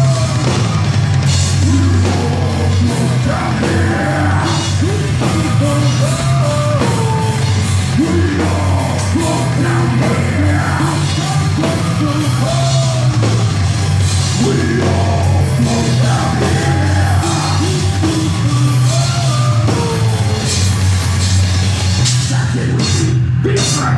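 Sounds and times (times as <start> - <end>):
rock band playing loudly: 0.0 - 23.9
person singing: 1.5 - 13.4, 14.3 - 20.5.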